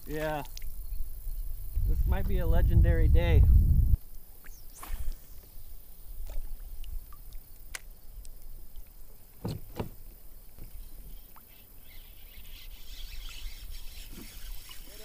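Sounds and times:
low rumble: 0:01.6 - 0:04.0.

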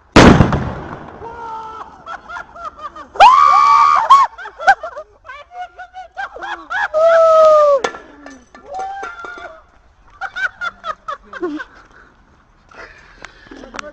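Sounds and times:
firecracker blast: 0:00.0 - 0:01.8.

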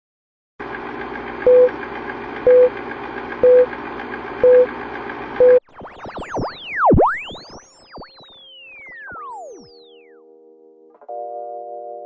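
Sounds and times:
film projector whirring: 0:00.6 - 0:05.4
short beeps: 0:05.4 - 0:08.4.

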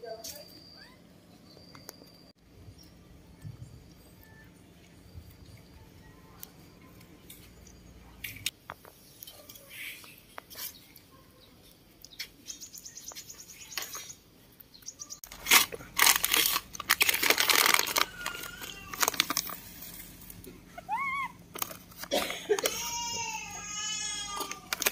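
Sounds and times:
loud close rustling and crinkling: 0:15.2 - 0:20.4, 0:21.5 - 0:23.0, 0:24.3 - 0:24.9.

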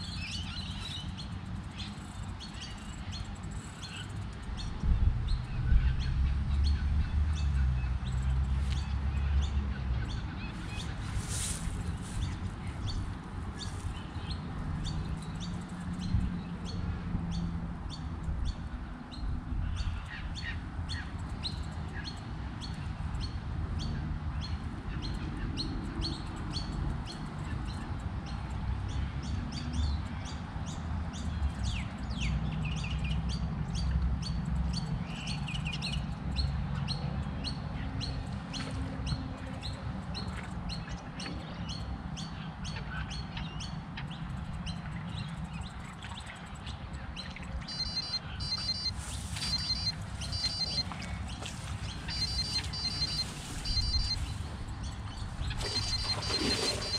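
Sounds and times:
birds chirping: 0:00.0 - 0:56.9
electronic bite alarm beeping: 0:47.7 - 0:51.0, 0:52.1 - 0:54.3, 0:55.7 - 0:56.9.

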